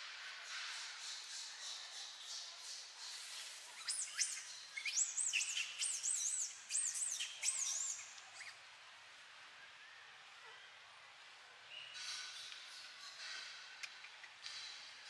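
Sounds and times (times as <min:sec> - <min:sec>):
faint outdoor hiss: 0:00.0 - 0:15.0
high whistled chirping calls: 0:03.8 - 0:08.5.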